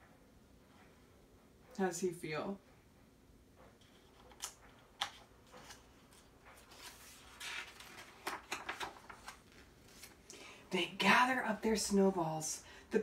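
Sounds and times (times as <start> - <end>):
paper rustling: 3.8 - 10.2.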